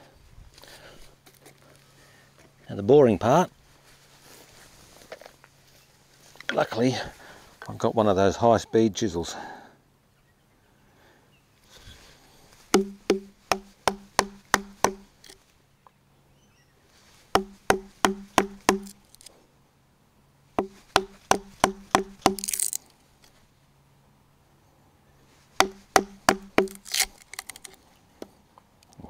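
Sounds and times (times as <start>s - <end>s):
mallet striking chisel: 12.7s - 15.1s, 17.4s - 19.0s, 20.6s - 22.7s, 25.6s - 27.0s.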